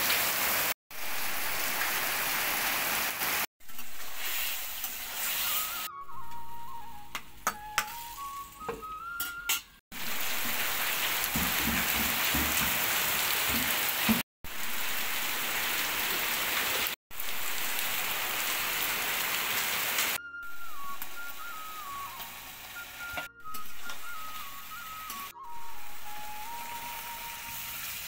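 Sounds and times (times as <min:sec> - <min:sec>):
heavy rain on tin roof: 0:00.0 - 0:03.5, 0:10.0 - 0:20.2
soft melody: 0:05.4 - 0:09.8, 0:20.2 - 0:28.0.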